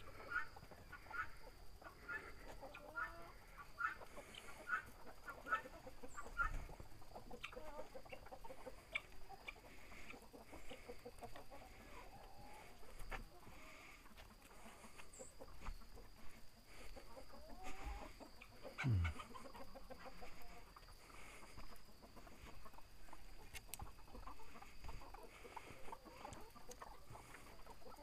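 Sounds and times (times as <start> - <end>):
chickens clucking softly: 0.0 - 28.0.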